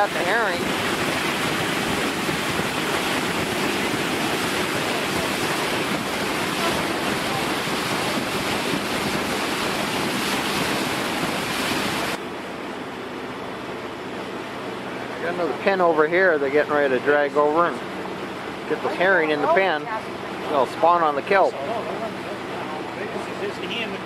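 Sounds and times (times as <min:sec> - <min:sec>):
wind buffeting microphone: 0:00.0 - 0:12.2
rush of wind and water: 0:00.0 - 0:24.0
faint low engine hum: 0:12.1 - 0:24.0.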